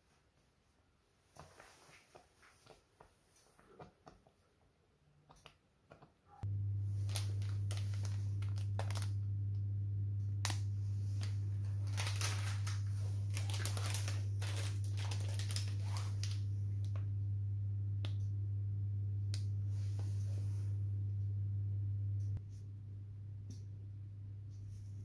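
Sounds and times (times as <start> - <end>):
steady low hum: 6.3 - 25.0
plastic packet crinkling: 7.0 - 9.2, 10.4 - 17.0.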